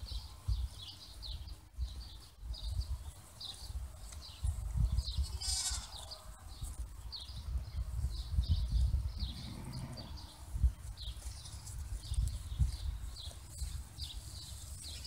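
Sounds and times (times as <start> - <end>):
sheep bleating: 5.3 - 6.0, 9.3 - 10.2.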